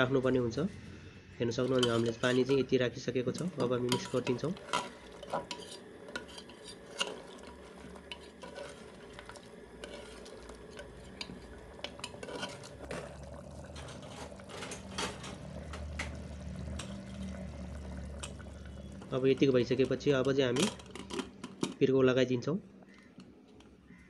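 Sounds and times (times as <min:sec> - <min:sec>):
low steady hum: 0:00.0 - 0:24.0
ladle scraping metal pot: 0:01.4 - 0:17.4, 0:18.1 - 0:21.9.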